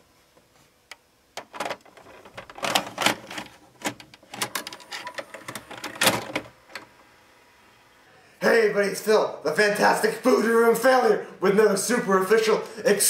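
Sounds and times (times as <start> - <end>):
vcr mechanism clicks and clunks: 1.4 - 7.1.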